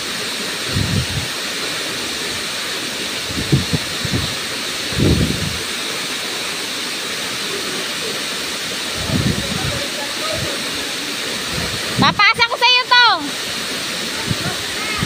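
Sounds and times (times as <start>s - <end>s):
waterfall rushing hiss: 0.0s - 15.0s
low rumbles: 0.7s - 1.4s.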